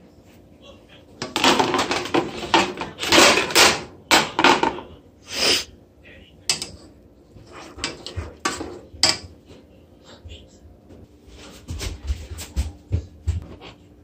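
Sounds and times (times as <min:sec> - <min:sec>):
plastic plates scraping and clacking: 0:01.2 - 0:04.7.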